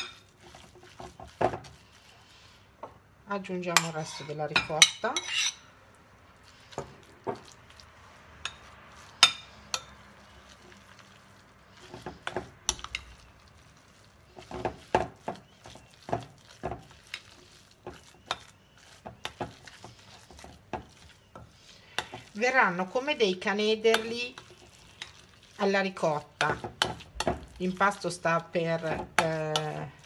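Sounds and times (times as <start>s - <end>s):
metal utensil clinking on glass bowl: 3.8s - 5.6s.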